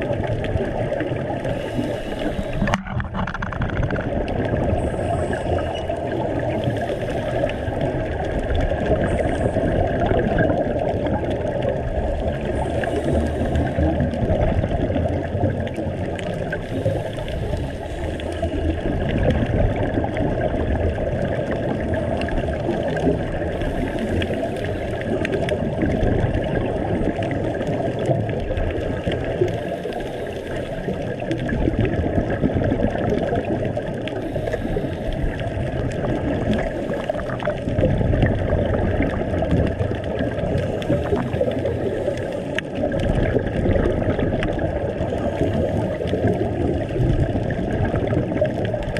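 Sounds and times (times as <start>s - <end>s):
underwater bubbles gurgling: 0.0s - 48.9s
regulator breathing: 1.4s - 3.0s.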